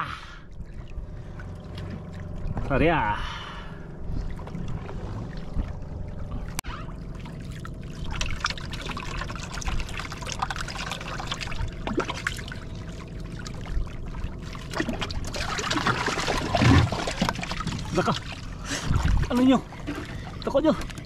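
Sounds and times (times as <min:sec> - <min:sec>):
low rumble: 0:00.0 - 0:21.0
water lapping against boat hull: 0:00.2 - 0:21.0
small splashes: 0:04.3 - 0:21.0.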